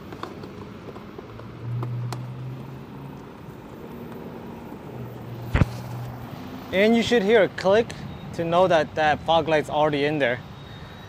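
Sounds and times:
low engine hum: 0.1 - 6.9.

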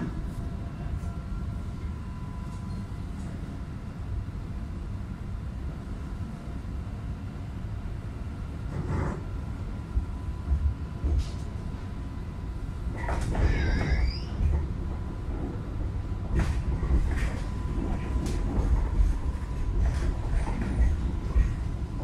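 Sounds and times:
tram rumbling: 0.0 - 22.0
wavering squeal: 13.4 - 14.4.

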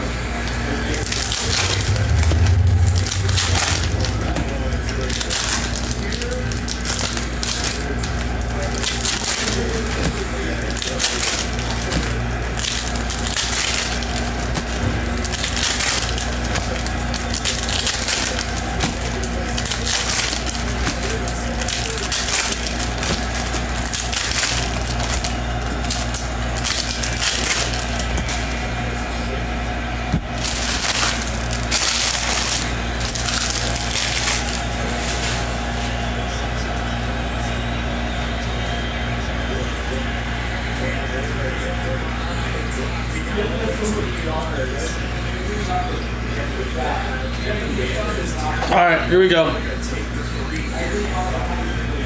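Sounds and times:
steady low hum: 0.0 - 52.0
cards being shuffled: 1.0 - 28.7.

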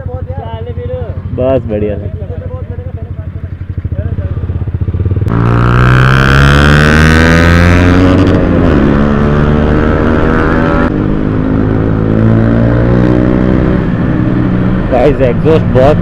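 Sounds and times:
motorcycle engine revving loudly: 4.2 - 16.0.

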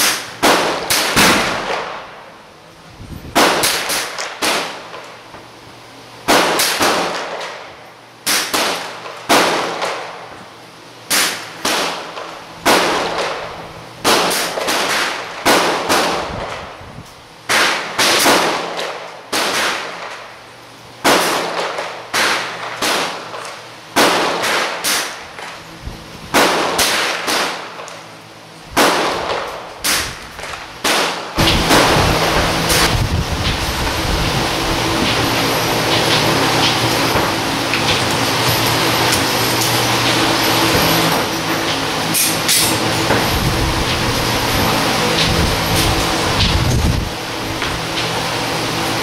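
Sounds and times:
gunshots echoing indoors: 0.0 - 2.3, 3.3 - 5.1, 6.2 - 10.3, 11.1 - 16.6, 17.5 - 20.4, 21.0 - 25.5, 26.3 - 28.0, 28.7 - 33.0.

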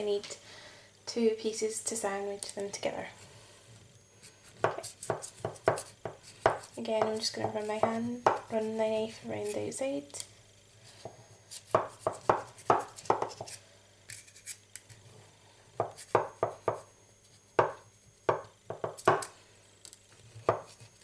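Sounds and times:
knife scraping metal cutter: 11.5 - 14.8.

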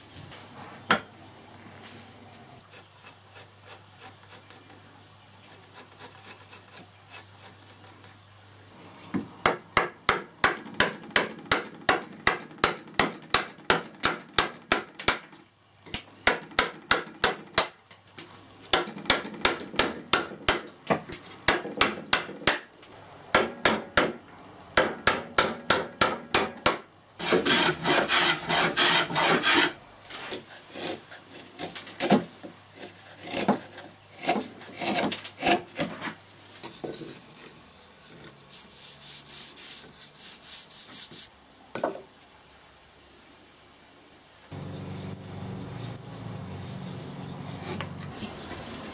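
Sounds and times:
coping saw cutting wood: 27.2 - 36.0.

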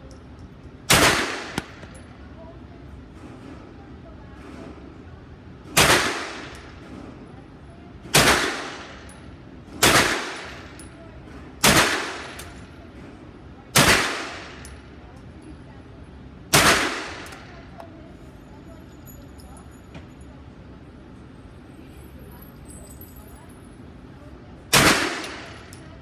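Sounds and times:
gunshots with reverberant tail: 0.9 - 1.8, 24.7 - 25.6.

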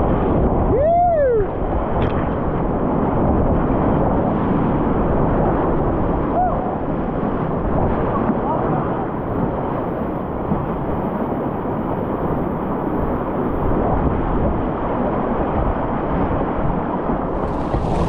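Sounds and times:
water splashing: 17.3 - 18.0
whitewater rapids rushing: 17.3 - 18.0.

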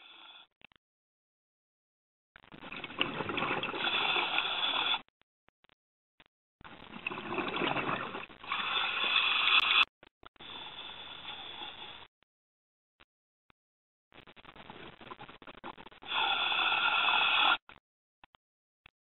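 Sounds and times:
bubbles rushing and gurgling: 2.5 - 5.0, 6.8 - 9.8.

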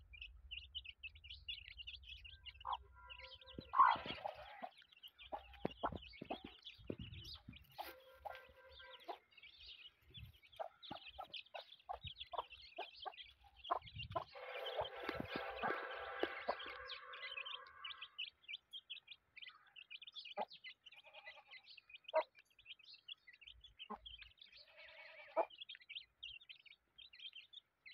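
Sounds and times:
chicks peeping: 0.0 - 27.9
hen clucking: 2.6 - 18.2, 23.8 - 25.6.

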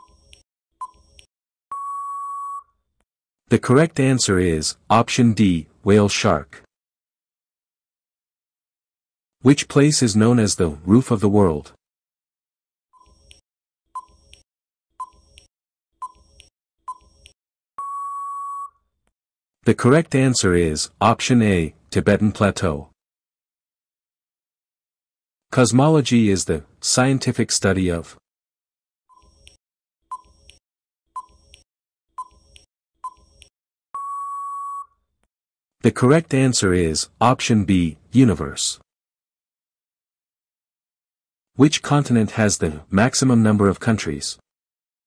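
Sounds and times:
long steady beep: 1.7 - 2.7, 17.8 - 18.8, 34.0 - 34.9
short beeps: 1.7 - 2.7, 17.8 - 18.8, 34.0 - 35.0.

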